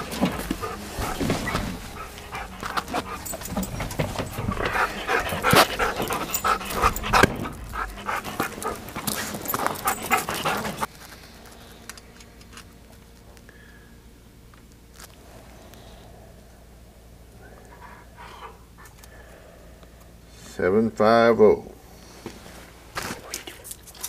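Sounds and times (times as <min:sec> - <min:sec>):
dog panting: 0:00.0 - 0:10.9, 0:17.6 - 0:19.1.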